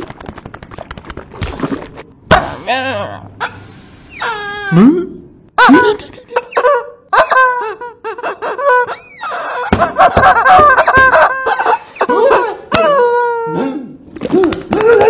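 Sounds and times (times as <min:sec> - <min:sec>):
cartoon cat yelps and squeals: 0:04.1 - 0:05.0.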